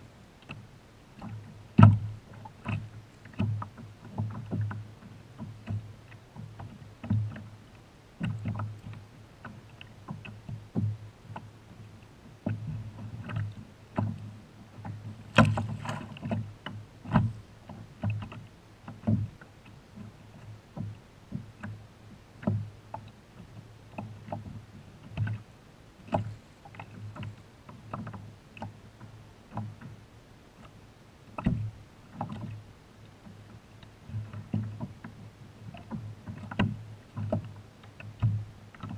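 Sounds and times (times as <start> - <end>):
water slapping hull: 0.0 - 38.9
hollow knocks on kayak hull: 1.2 - 7.5, 8.2 - 11.5, 12.4 - 19.4.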